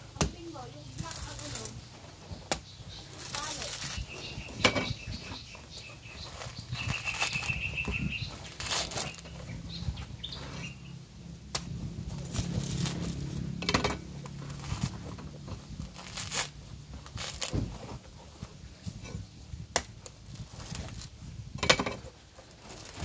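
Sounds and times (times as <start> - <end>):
husk fibres tearing: 0.9 - 4.2, 5.8 - 9.6, 11.4 - 18.4, 19.7 - 21.4, 22.3 - 23.0
knife cutting coconut husk: 8.4 - 9.4.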